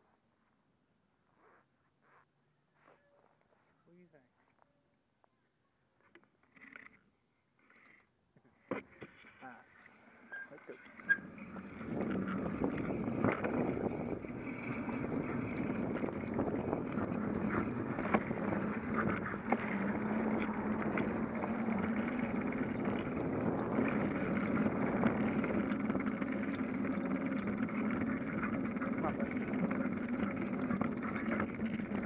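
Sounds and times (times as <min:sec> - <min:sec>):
bicycle rolling on concrete: 0:09.5 - 0:32.0
clicks and rattles: 0:10.8 - 0:32.0
low hum: 0:11.0 - 0:32.0
wind noise: 0:11.2 - 0:32.0.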